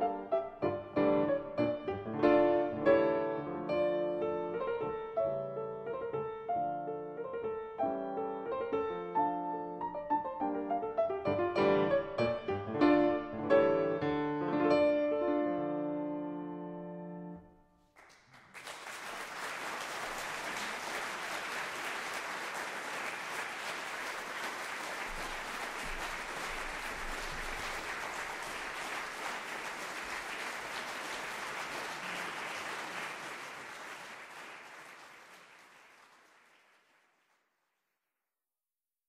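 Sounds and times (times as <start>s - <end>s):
crowd applause: 18.0s - 37.5s.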